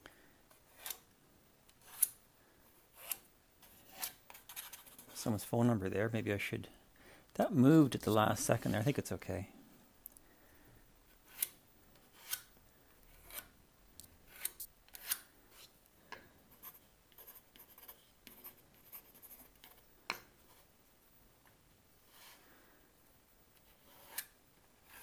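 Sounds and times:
pencil scratching on wood: 1.8s - 2.2s, 2.8s - 5.2s, 11.1s - 12.5s, 13.2s - 13.5s, 16.5s - 20.7s, 22.0s - 22.4s, 23.6s - 25.0s.

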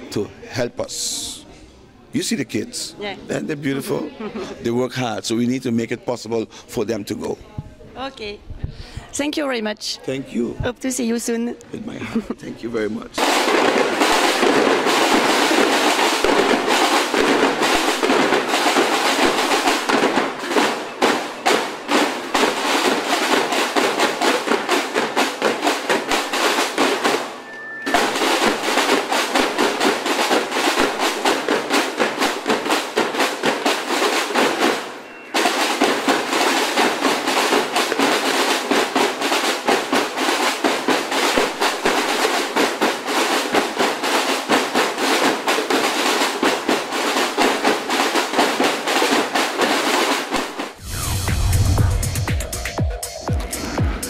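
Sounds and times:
snare drums: 13.1s - 54.0s
bass drum: 50.4s - 54.0s.

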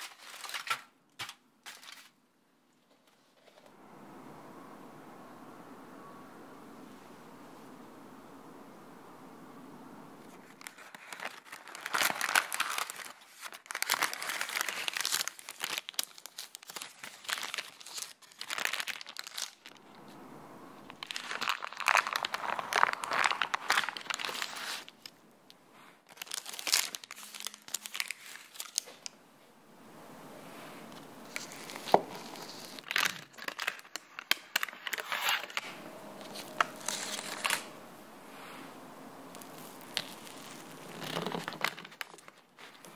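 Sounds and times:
parchment paper crinkling: 0.0s - 2.2s, 10.2s - 19.8s, 20.9s - 25.2s, 26.0s - 29.2s, 31.0s - 37.7s, 39.2s - 42.9s.

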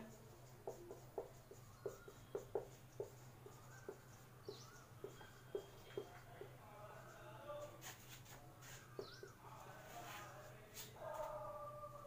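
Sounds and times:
marker pen squeaking on whiteboard: 0.0s - 6.5s, 7.7s - 9.4s.

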